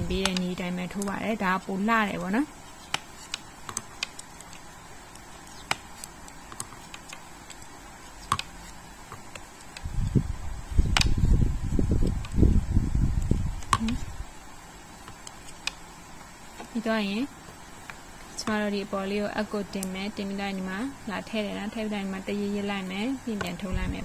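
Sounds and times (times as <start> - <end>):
knitting needles clicking: 0.0 - 1.4.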